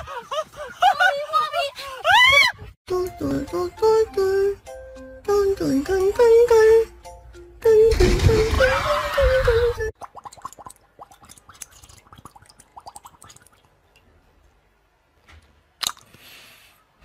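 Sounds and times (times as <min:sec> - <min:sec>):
water splashing and gurgling: 0:07.9 - 0:13.8.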